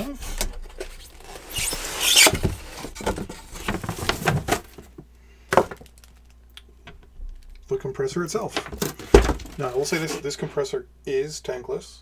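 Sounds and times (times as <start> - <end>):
cardboard and plastic rustling: 0.1 - 6.3, 8.5 - 10.6
handling knocks: 8.5 - 9.9.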